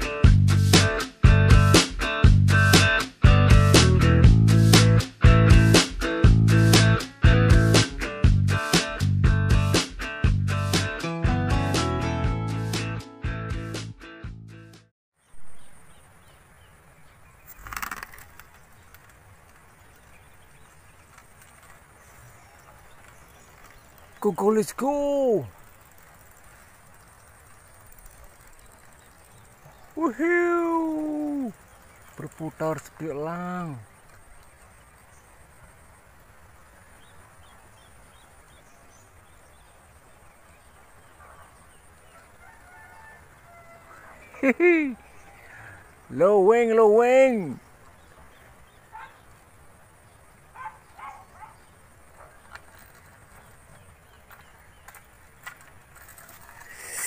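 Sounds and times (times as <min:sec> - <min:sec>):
guitar music: 0:00.0 - 0:14.8
faint birdsong: 0:15.2 - 0:57.0.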